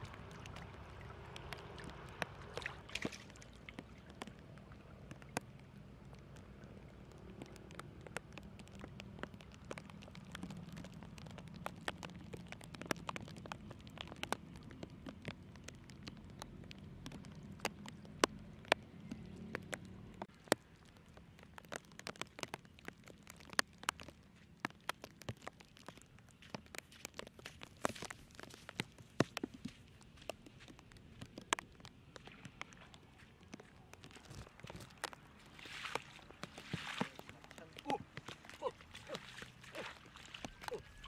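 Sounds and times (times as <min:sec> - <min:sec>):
light rain pattering: 0:00.0 - 0:41.0.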